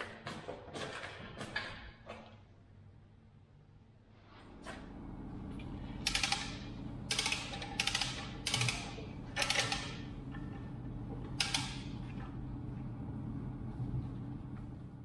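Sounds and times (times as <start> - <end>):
low hum: 9.0 - 15.0.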